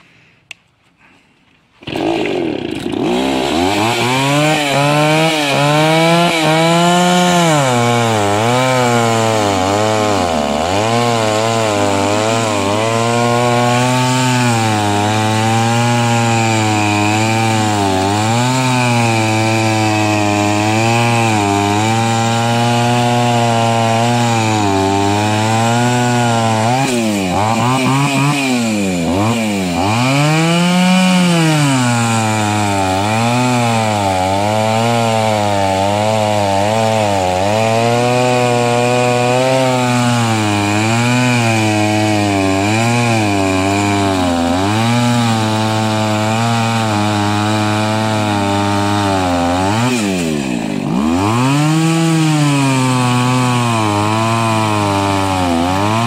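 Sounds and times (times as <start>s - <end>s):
chainsaw cutting log: 1.0s - 56.0s.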